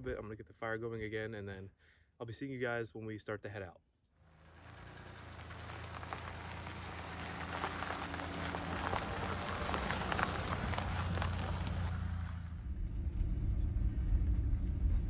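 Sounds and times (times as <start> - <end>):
tyres crunching on gravel: 4.3 - 12.6
low engine hum: 4.3 - 15.0.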